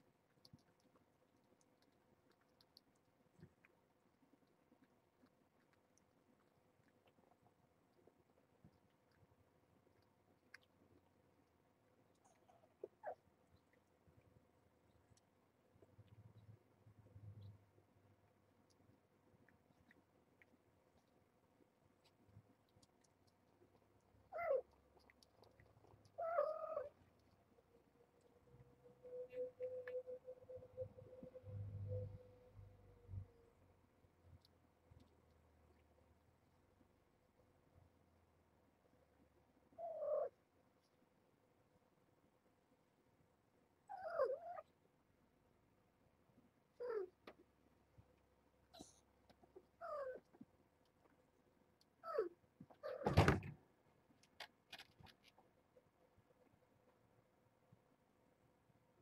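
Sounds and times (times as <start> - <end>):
faint small ticks: 0.1 - 9.3
cat meowing: 24.3 - 24.7, 26.2 - 26.9.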